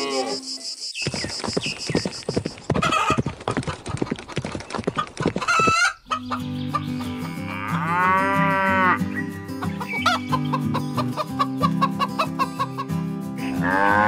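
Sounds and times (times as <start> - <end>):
hen clucking: 2.7 - 8.9, 9.5 - 12.9
hen cackling: 2.8 - 3.8, 5.4 - 14.0
music with low sustained notes: 6.2 - 14.0.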